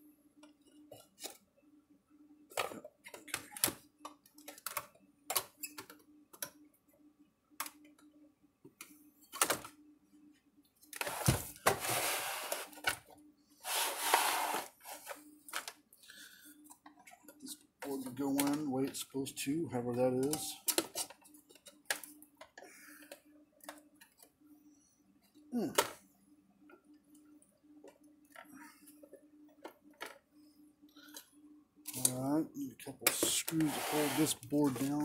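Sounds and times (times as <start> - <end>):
rough scraping: 33.6 - 34.9.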